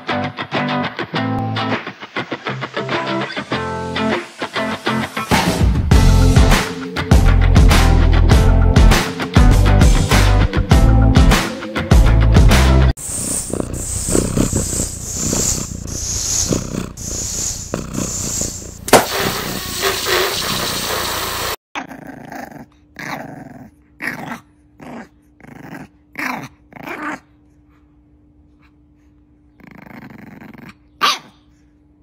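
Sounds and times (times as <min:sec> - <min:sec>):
loud scratchy rhythmic noise: 0:13.0 - 0:21.6
puppy yipping: 0:31.0 - 0:31.5.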